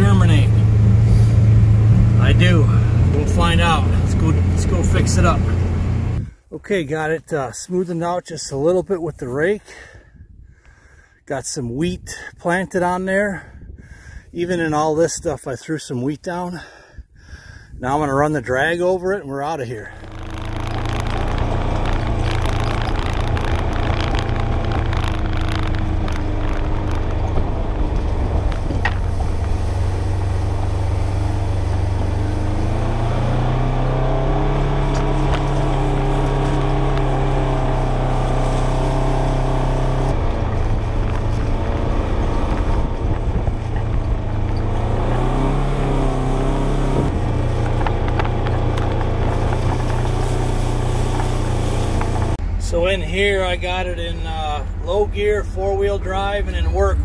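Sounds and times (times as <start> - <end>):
utility vehicle engine revving: 0.0 - 6.4, 19.8 - 57.0.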